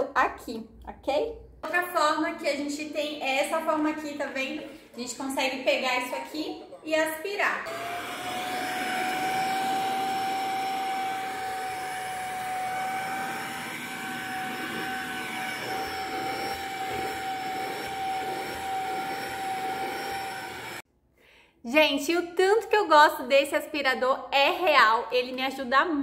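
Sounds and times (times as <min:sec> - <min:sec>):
vacuum cleaner motor whine: 0:07.6 - 0:20.8
vacuum sucking on upholstery: 0:07.7 - 0:20.8.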